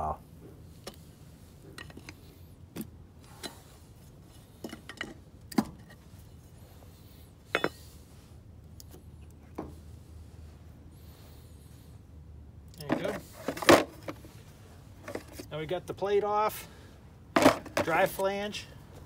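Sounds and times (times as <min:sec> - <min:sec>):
metal tool tapping on steel: 0:07.6 - 0:07.8.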